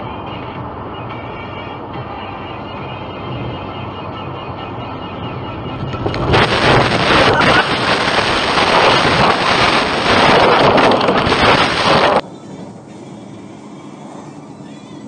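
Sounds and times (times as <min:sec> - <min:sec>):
car crash rushing noise: 0:05.9 - 0:12.2.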